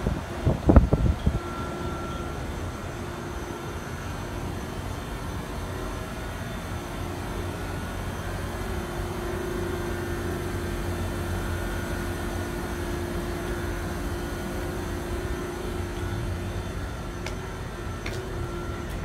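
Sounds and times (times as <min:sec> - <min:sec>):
air conditioner units humming: 0:00.0 - 0:19.0
constant tone: 0:00.0 - 0:19.0.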